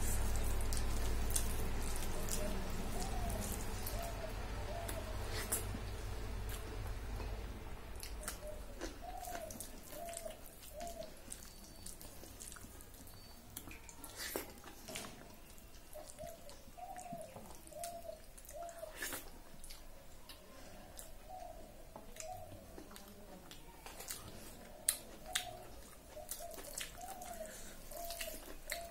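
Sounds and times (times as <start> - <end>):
bird calling: 1.5 - 5.7, 8.1 - 12.0, 15.8 - 19.1, 25.2 - 28.9
wet mouth and finger clicks eating: 22.1 - 28.9.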